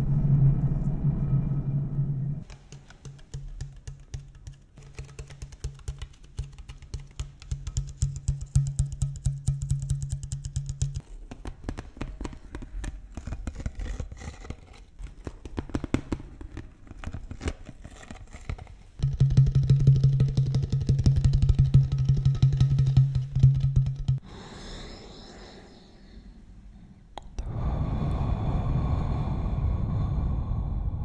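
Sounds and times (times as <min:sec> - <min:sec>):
low steady hum: 0:00.0 - 0:02.6.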